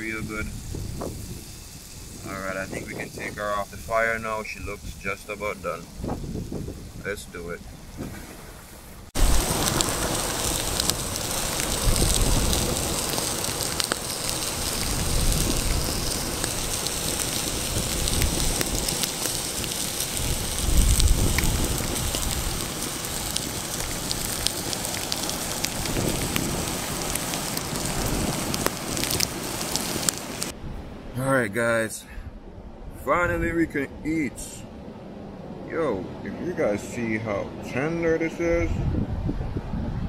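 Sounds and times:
wind rumble on microphone: 0:00.0 - 0:31.2, 0:38.4 - 0:40.0
wood fire crackling and sizzling: 0:00.0 - 0:32.0.

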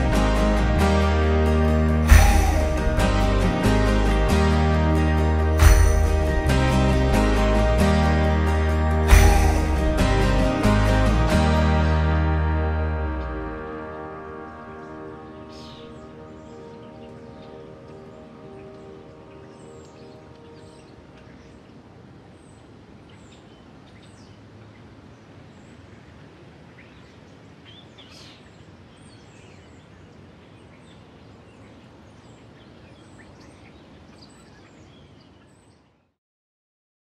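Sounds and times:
held music notes: 0:00.0 - 0:21.5
steady background hiss and rumble: 0:13.0 - 0:36.0
small birds chirping: 0:15.3 - 0:36.1.

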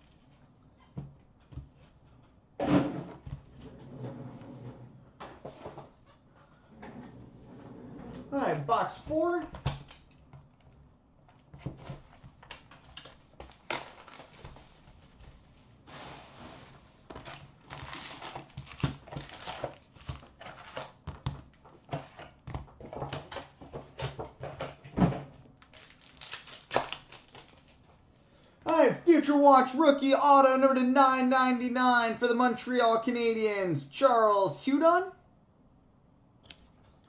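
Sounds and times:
cardboard and foil packs rustling: 0:11.6 - 0:24.7, 0:25.6 - 0:28.0
plastic shrink wrap crinkling: 0:11.8 - 0:15.6, 0:16.7 - 0:21.6, 0:25.6 - 0:28.0.

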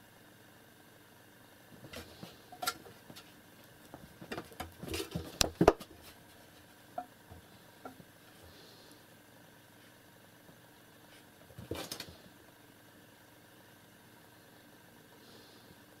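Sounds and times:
cats scuffling: 0:01.8 - 0:06.7, 0:10.5 - 0:12.4.

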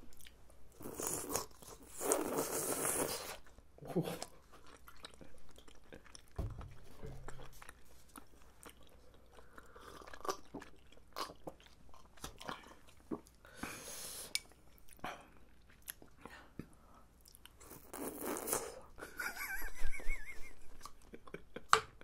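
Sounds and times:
chewing food: 0:00.0 - 0:13.5, 0:14.3 - 0:18.6
low thump: 0:06.4 - 0:07.4.

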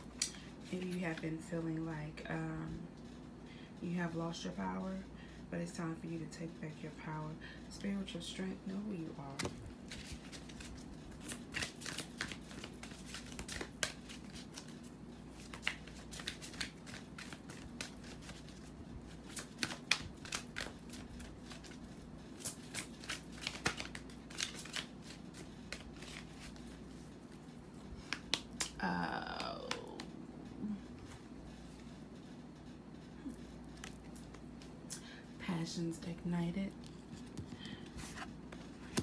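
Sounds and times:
steady low hum: 0:00.0 - 0:39.0
cards shuffling: 0:09.3 - 0:27.4, 0:28.0 - 0:28.8, 0:37.0 - 0:39.0.

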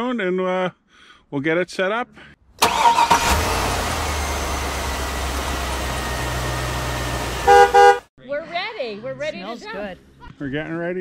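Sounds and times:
engine-like rumble: 0:02.6 - 0:08.0
car horn toot: 0:06.8 - 0:08.1.

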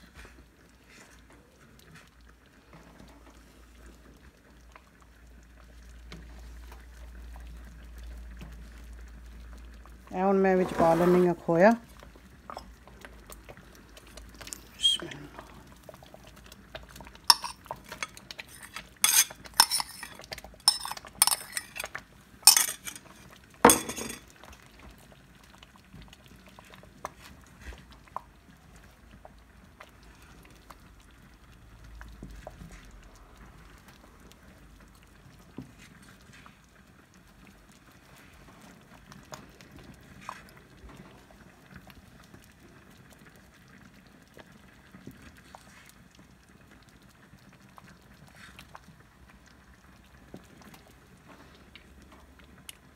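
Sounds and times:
pot simmering: 0:00.0 - 0:52.9
spoon clinking against glass bowl: 0:17.3 - 0:21.9, 0:22.5 - 0:23.1, 0:23.7 - 0:24.2.

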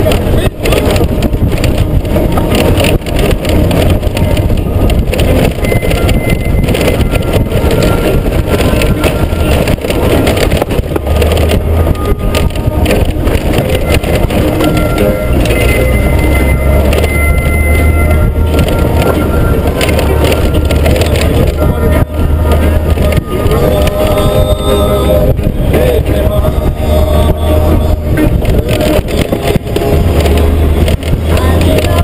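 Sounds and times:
knocks and rattles: 0:00.0 - 0:32.0
motorcycle engine running: 0:00.0 - 0:32.0
tyres crunching gravel: 0:00.0 - 0:32.0.

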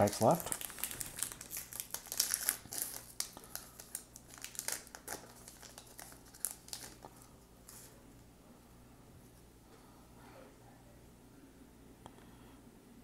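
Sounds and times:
wrapper crinkling: 0:00.0 - 0:07.9.

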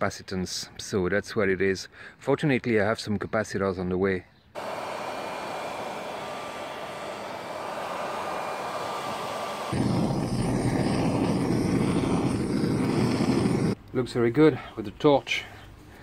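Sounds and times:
blow torch flame rushing: 0:04.6 - 0:13.8
heat gun blowing: 0:04.6 - 0:13.8.

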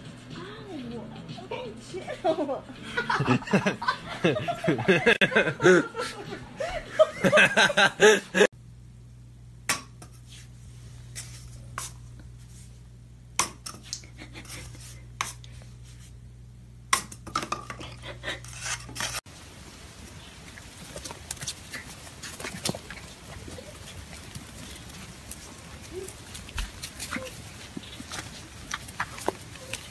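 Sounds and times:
steady low hum: 0:00.0 - 0:29.9
noisy hiss: 0:19.3 - 0:29.9.

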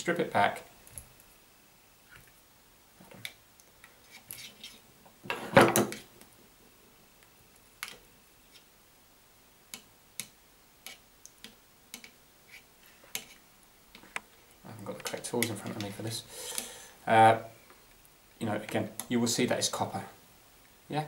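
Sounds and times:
rustling scrape: 0:04.0 - 0:04.8
small clicks and handling noises: 0:07.2 - 0:08.7, 0:09.7 - 0:12.2.

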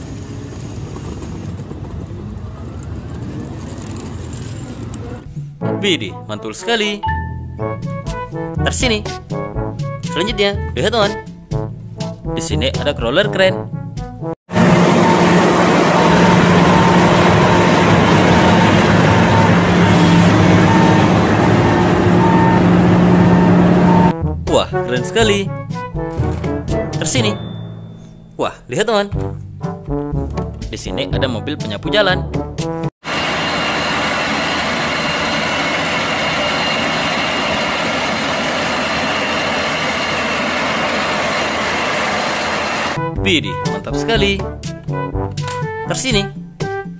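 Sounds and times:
mechanical noise of tracks: 0:00.0 - 0:05.3, 0:14.5 - 0:24.1, 0:33.0 - 0:43.0
diesel engine running: 0:14.5 - 0:24.1, 0:33.0 - 0:43.0
faint high whine: 0:33.1 - 0:43.0.

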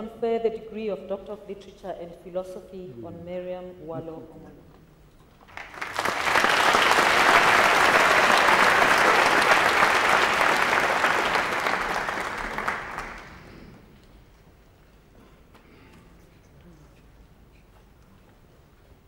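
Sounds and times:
audience applauding: 0:05.5 - 0:13.8.

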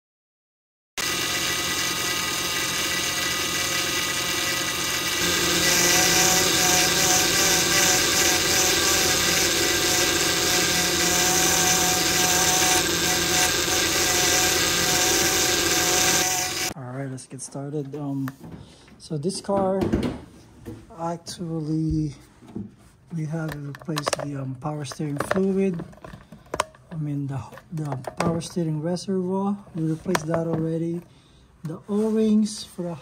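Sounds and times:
power steering pump whining: 0:01.0 - 0:16.8.

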